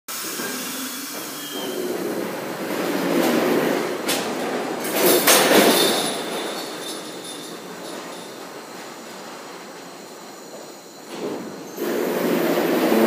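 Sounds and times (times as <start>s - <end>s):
subway train running over rails: 0.1s - 13.0s
high wheel squeal: 0.2s - 2.2s, 9.9s - 13.0s
clacks over rail joints: 1.5s - 9.9s.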